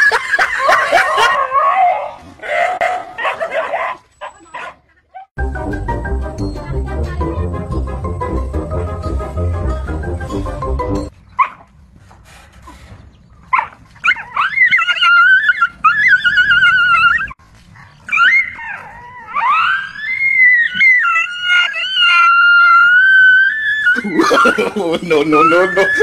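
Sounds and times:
dog yelping: 13.5 - 17.4, 18.1 - 24.5, 25.3 - 26.0
dog whining: 13.6 - 17.4, 18.1 - 24.1.

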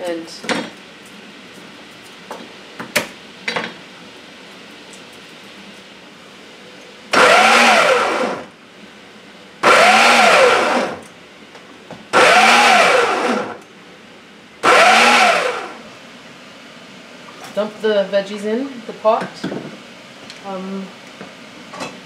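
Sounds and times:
food processor pulsing: 7.2 - 8.5, 9.6 - 11.0, 12.2 - 13.6, 14.6 - 15.9.

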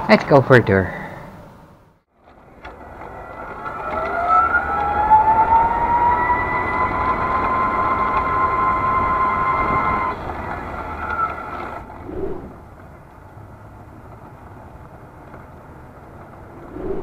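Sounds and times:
electric motor whining: 2.3 - 12.5.

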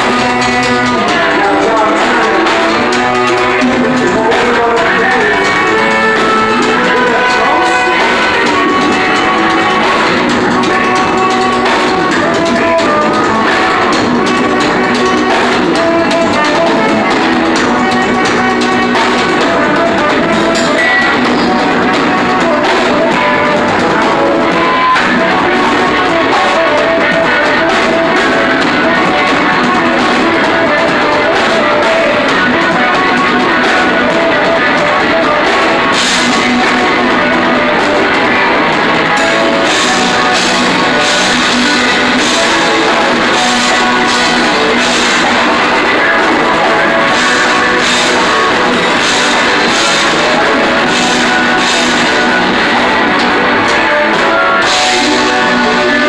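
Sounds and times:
drum kit: 0.0 - 56.0
electric guitar: 0.0 - 56.0
saxophone: 0.0 - 56.0.

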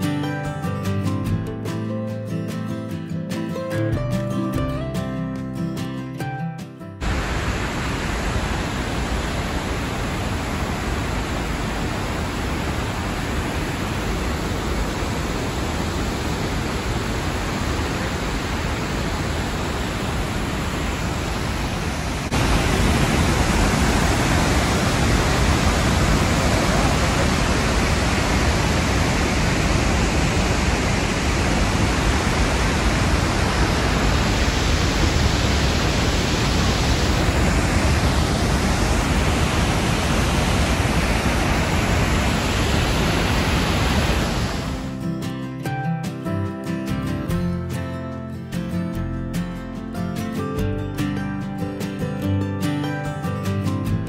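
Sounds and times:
waterfall rushing: 7.0 - 45.0.

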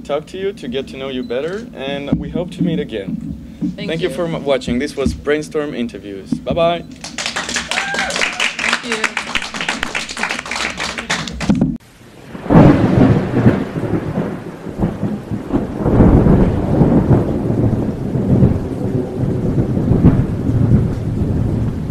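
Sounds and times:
rolling thunder: 0.0 - 10.6, 11.4 - 21.9
steady rain: 0.0 - 21.9
thunderclap: 0.0 - 21.9
rapid clapping: 6.9 - 11.8.

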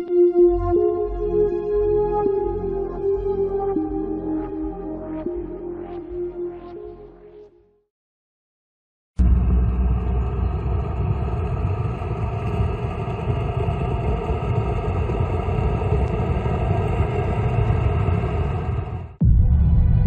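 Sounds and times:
car driving rumble: 9.2 - 17.6.

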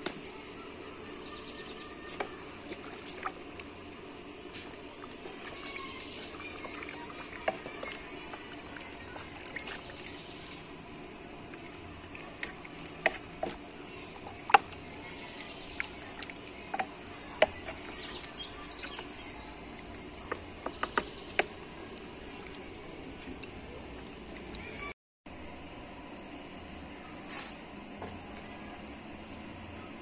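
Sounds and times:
stew simmering in a pot: 0.0 - 24.9
bubbles popping: 4.7 - 24.7.

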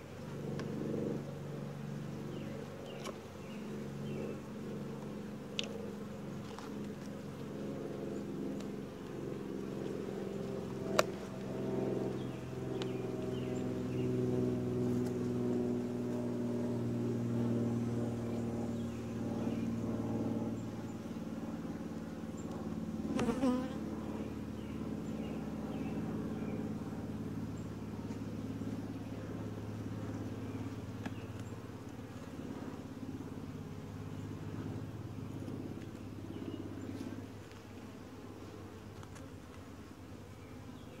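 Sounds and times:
bees buzzing: 23.0 - 24.3.

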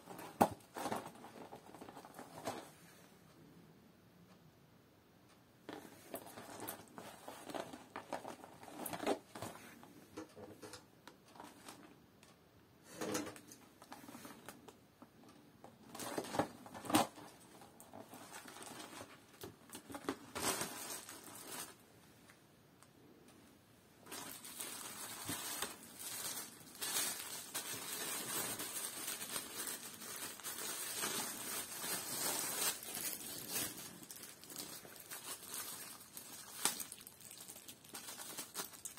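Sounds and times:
plastic wrapping crinkling: 0.0 - 2.7, 5.7 - 11.9, 15.7 - 21.8, 24.0 - 38.9.

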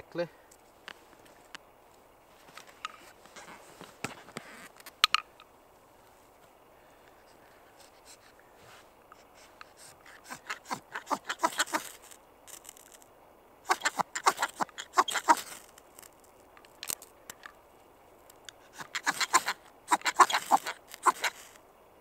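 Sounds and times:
knife rasping on ferro rod: 9.2 - 12.9, 13.7 - 15.7, 18.6 - 21.6.

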